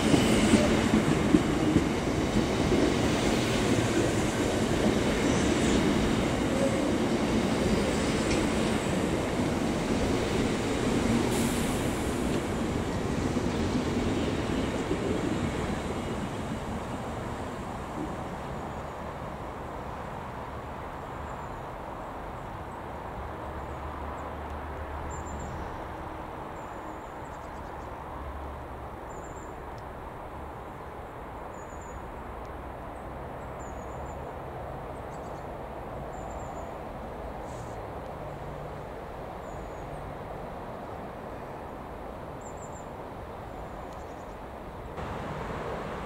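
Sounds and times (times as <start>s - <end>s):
freight train rumbling: 0.0s - 21.3s, 33.9s - 46.0s.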